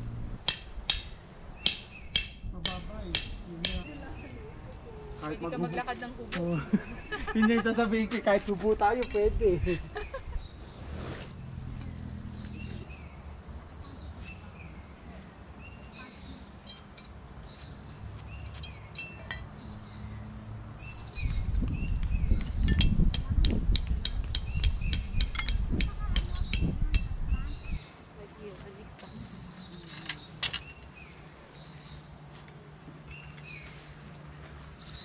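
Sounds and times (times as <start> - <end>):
loud low rumble: 0.0 - 0.5
low hum: 0.0 - 0.9
small birds chirping: 0.0 - 35.0.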